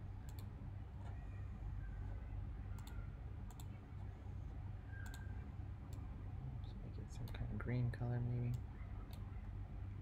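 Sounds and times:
computer mouse clicks: 0.2s - 0.5s, 2.8s - 3.8s, 4.9s - 5.3s.

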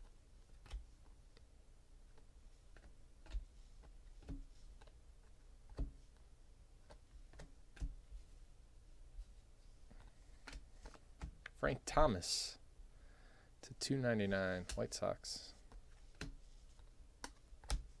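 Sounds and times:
cards being flipped: 9.9s - 11.5s, 15.7s - 18.0s.

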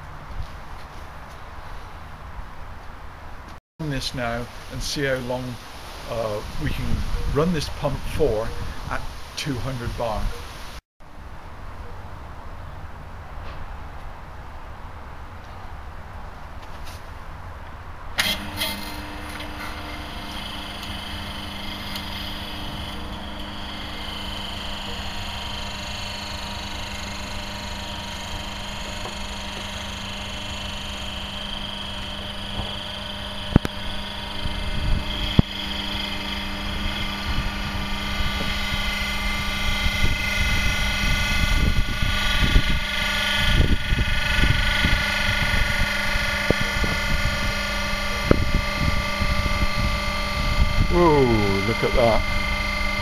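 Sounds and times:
hydraulic pump hum and whine: 18.2s - 53.0s
sharp clicks: 28.9s - 37.2s.

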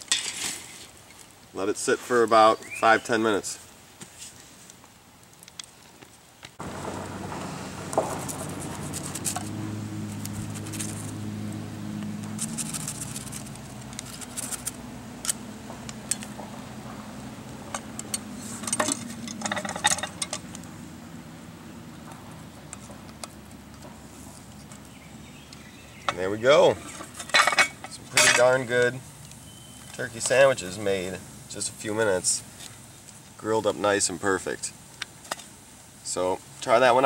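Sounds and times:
low hum: 6.6s - 23.2s
pie iron clicking and scraping: 17.6s - 20.7s, 26.0s - 30.4s.

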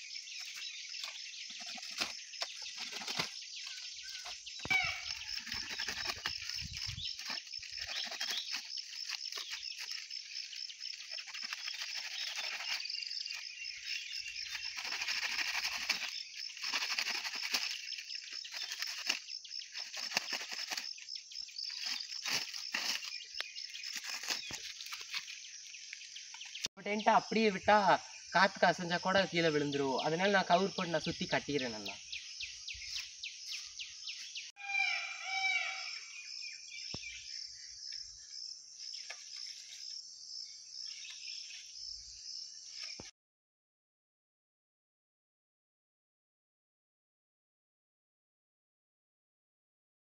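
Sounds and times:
dry palm fronds rustling: 0.0s - 26.7s
insects chirping: 0.0s - 43.1s.

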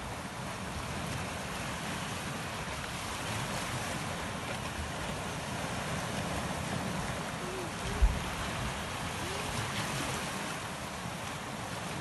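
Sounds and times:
surf washing over rocks: 0.0s - 12.0s
wind on microphone: 5.0s - 10.8s.

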